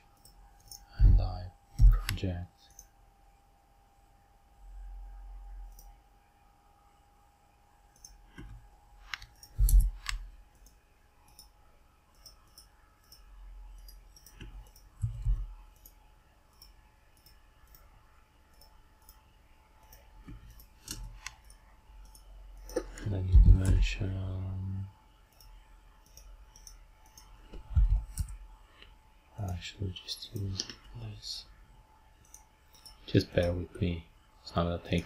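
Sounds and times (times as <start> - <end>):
faint steady hum: 0.0 - 35.0
computer mouse clicking: 7.9 - 17.9, 18.5 - 23.8, 25.3 - 28.4, 32.2 - 33.5.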